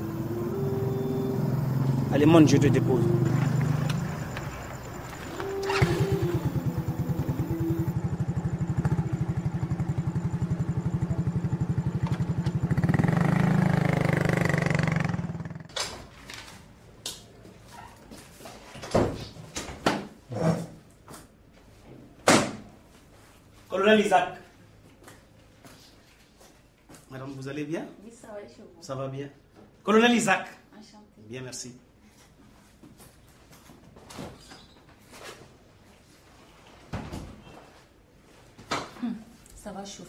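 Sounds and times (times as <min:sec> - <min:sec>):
small motorcycle engine: 0:00.0 - 0:15.8.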